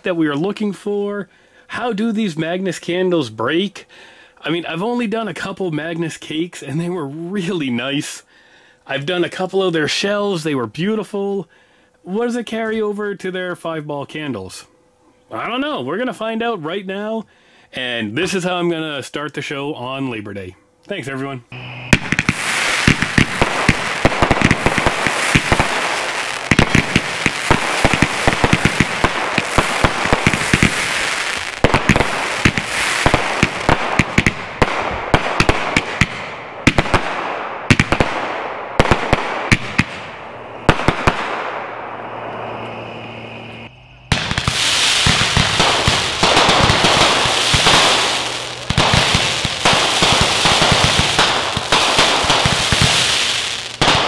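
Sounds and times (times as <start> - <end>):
roman candles firing: 21.5 - 43.0, 43.6 - 54.0
crackling fireworks: 21.5 - 54.0.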